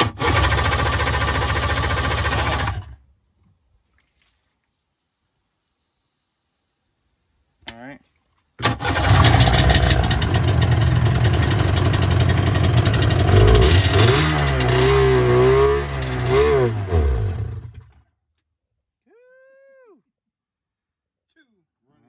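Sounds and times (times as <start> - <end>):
jet ski engine revving: 0.0 - 3.0, 8.6 - 18.0.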